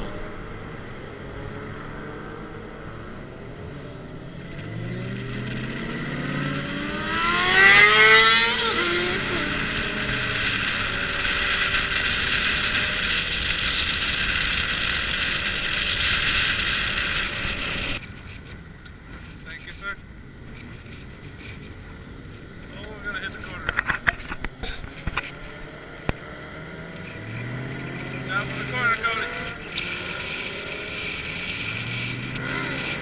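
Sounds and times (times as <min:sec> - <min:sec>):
car engine revving: 0:00.0 - 0:18.0, 0:22.5 - 0:33.0
wind and road noise: 0:00.0 - 0:33.0.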